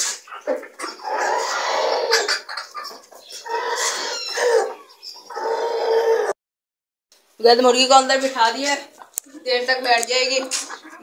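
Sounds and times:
chickens calling: 0:00.0 - 0:06.3, 0:09.9 - 0:11.0.

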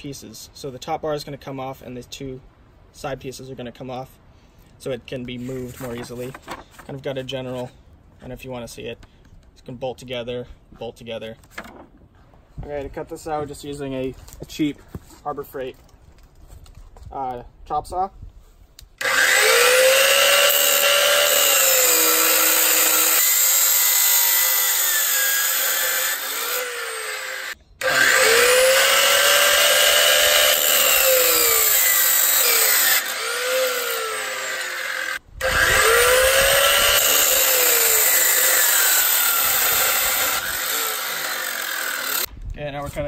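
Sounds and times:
chop saw cutting steel: 0:19.0 - 0:42.3.

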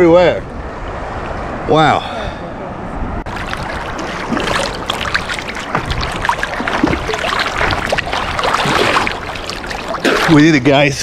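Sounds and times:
water splashing from swimming: 0:03.3 - 0:10.8.

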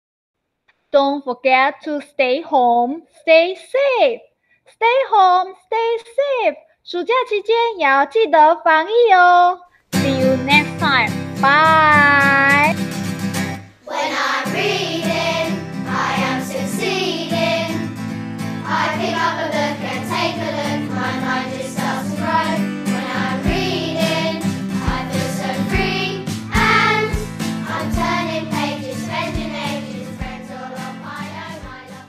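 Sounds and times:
children's song with vocals: 0:04.8 - 0:12.8, 0:13.6 - 0:32.0
low drum beat: 0:24.8 - 0:28.3.

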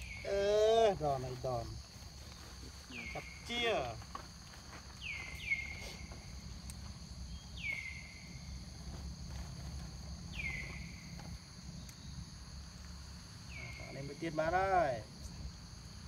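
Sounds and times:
insects buzzing: 0:00.0 - 0:16.0.

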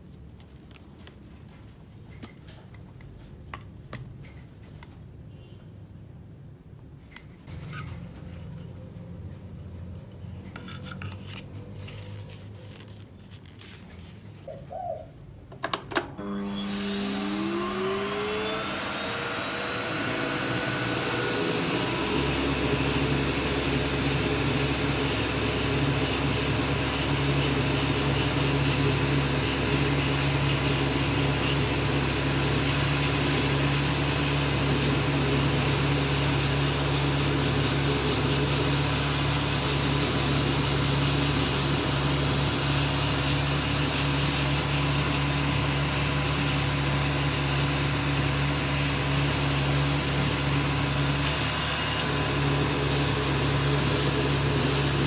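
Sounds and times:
vacuum cleaner motor whining: 0:15.9 - 0:55.0.

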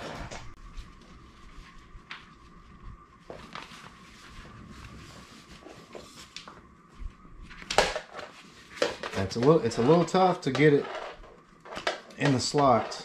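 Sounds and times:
nylon chair seat rustling: 0:03.2 - 0:13.0.

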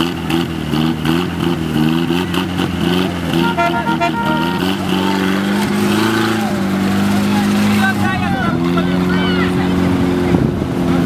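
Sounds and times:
pickup engine revving: 0:00.0 - 0:11.0
brief high tone: 0:03.4 - 0:05.0.

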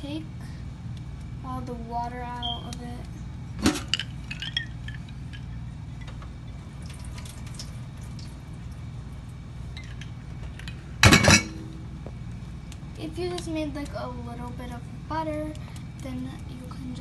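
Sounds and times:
water dripping and splashing: 0:01.9 - 0:10.9
water draining into metal sink: 0:03.6 - 0:11.5.

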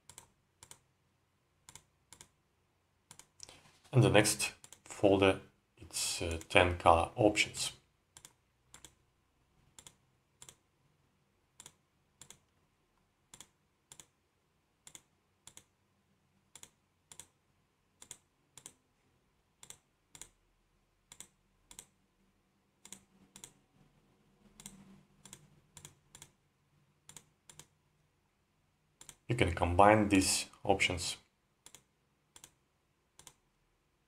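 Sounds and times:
faint computer mouse clicks: 0:00.1 - 0:00.8, 0:01.7 - 0:02.3, 0:03.1 - 0:03.6, 0:08.2 - 0:09.0, 0:09.8 - 0:10.6, 0:11.6 - 0:12.6, 0:13.3 - 0:14.1, 0:14.8 - 0:15.7, 0:21.1 - 0:21.9, 0:24.6 - 0:26.4, 0:27.1 - 0:27.7, 0:29.0 - 0:29.2, 0:31.6 - 0:32.6, 0:33.2 - 0:33.4.

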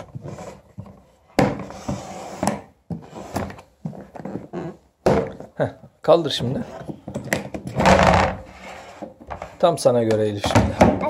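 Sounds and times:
plastic litter box knocks and thuds: 0:10.4 - 0:11.0.

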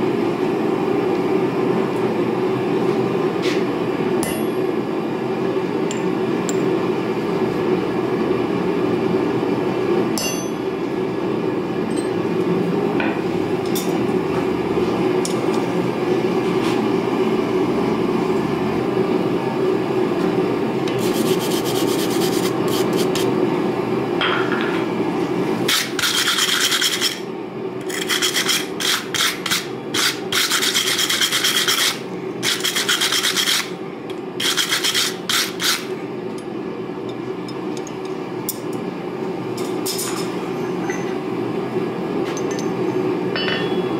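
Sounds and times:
wire brush scrubbing hot steel: 0:21.0 - 0:23.3, 0:25.7 - 0:27.2, 0:27.9 - 0:33.7, 0:34.4 - 0:35.9.

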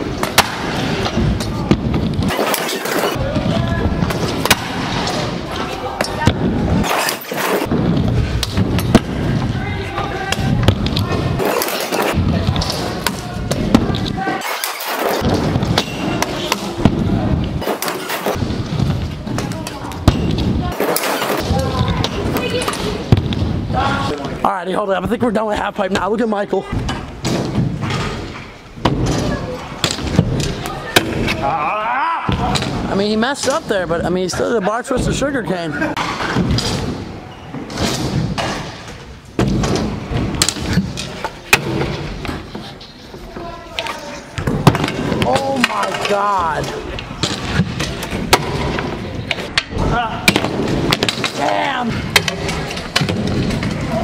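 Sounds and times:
scooters rolling on wooden ramps: 0:35.8 - 0:54.0.

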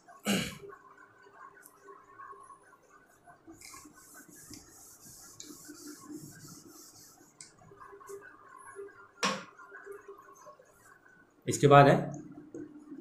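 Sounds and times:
duster wiping a whiteboard: 0:03.6 - 0:07.5.

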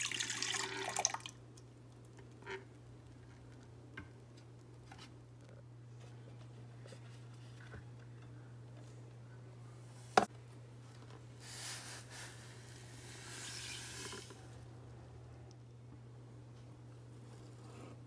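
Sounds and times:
granules poured into metal bowl: 0:11.5 - 0:14.3.

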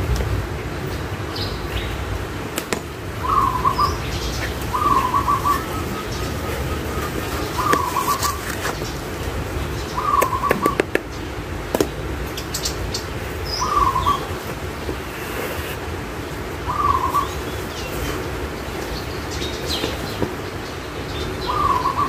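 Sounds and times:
bird call: 0:03.2 - 0:08.9, 0:09.9 - 0:10.9, 0:13.4 - 0:14.4, 0:21.4 - 0:22.0.

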